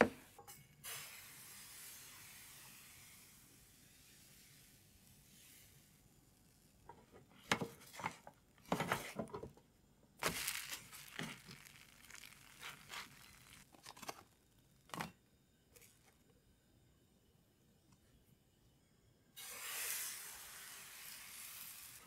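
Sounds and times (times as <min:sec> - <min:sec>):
faint hiss: 0:00.0 - 0:22.0
pancake scraping in frying pan: 0:10.2 - 0:13.7, 0:19.4 - 0:22.0.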